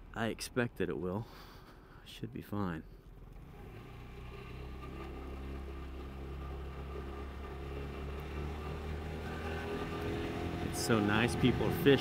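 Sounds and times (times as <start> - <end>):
scooter engine humming: 3.1 - 12.0.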